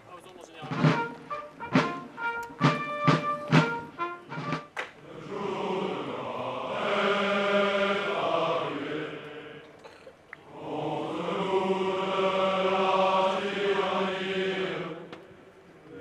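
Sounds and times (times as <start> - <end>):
brass notes: 0.6 - 4.8
drum strokes: 0.6 - 4.8
long held band chord: 0.7 - 4.8.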